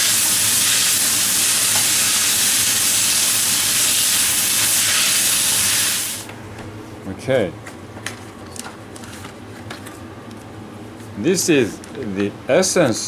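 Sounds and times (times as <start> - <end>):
vegetables sizzling in a wok: 0.0 - 6.3.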